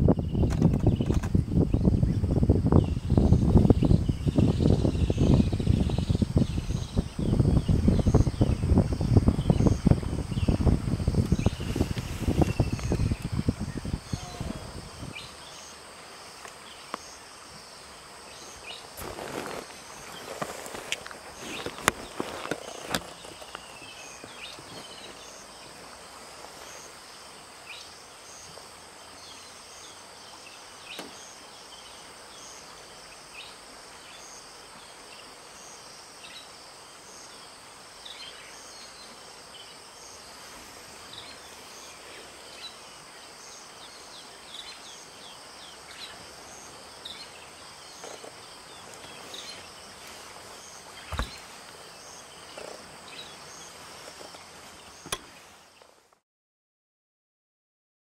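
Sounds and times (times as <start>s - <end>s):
high-pitched insect drone: 0.1s - 24.6s
faint chirp: 11.3s - 15.8s.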